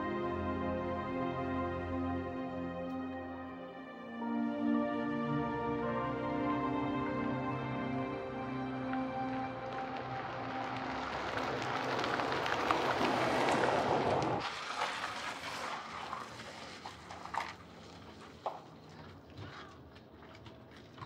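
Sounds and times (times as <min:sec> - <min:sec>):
outdoor ambience: 0:00.0 - 0:21.0
car driving on paved road: 0:07.6 - 0:21.0.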